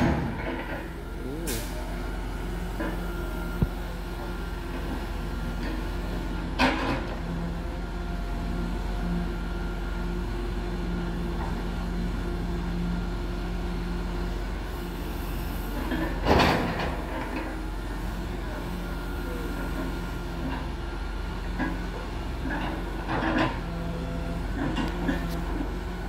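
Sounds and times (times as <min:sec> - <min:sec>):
hydraulic boom working: 0:00.0 - 0:04.9
diesel engine running: 0:00.0 - 0:26.0.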